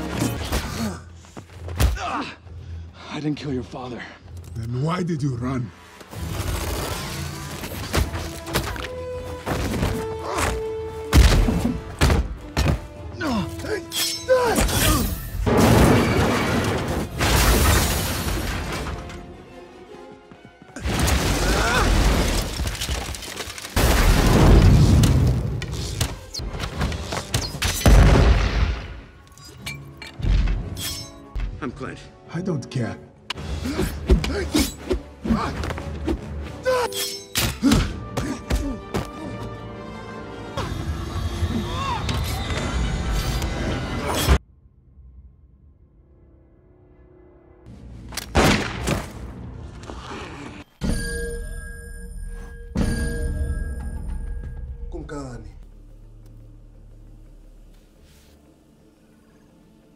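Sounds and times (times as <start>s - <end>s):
film music score: 0.0s - 59.9s
vehicle crashing and shattering: 15.5s - 19.2s.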